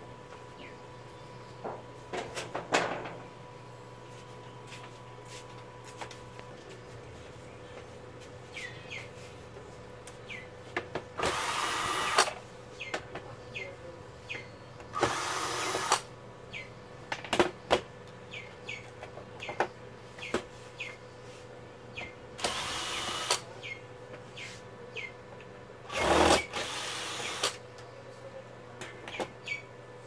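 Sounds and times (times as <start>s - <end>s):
bird chirping: 8.5s - 9.1s, 10.2s - 10.5s, 12.8s - 15.0s, 16.5s - 16.8s, 18.3s - 19.6s, 29.1s - 29.7s
cordless drill spinning out screws: 11.2s - 12.3s, 15.0s - 16.0s, 22.4s - 23.4s, 25.9s - 27.6s.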